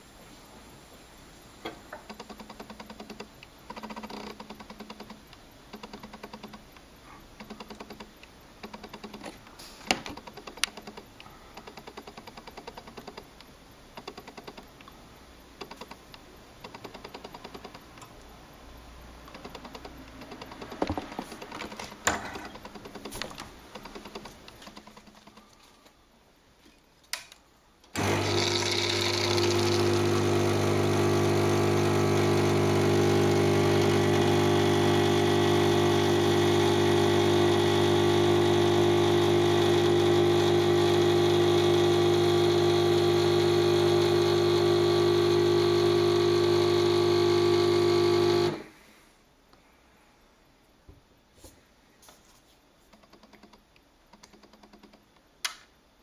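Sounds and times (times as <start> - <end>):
espresso machine pump humming: 28.0 - 48.7.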